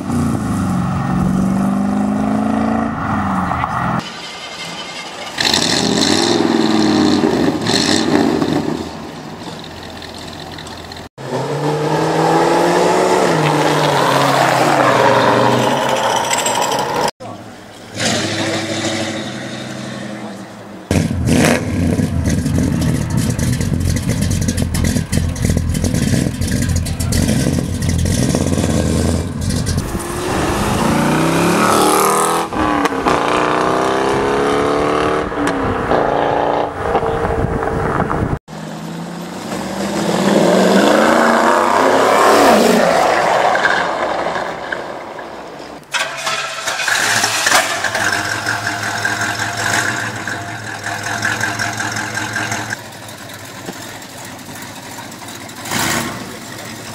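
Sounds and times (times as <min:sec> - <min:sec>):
car engine idling: 0:22.1 - 0:28.3, 0:47.7 - 0:56.9
car accelerating past: 0:27.2 - 0:38.1.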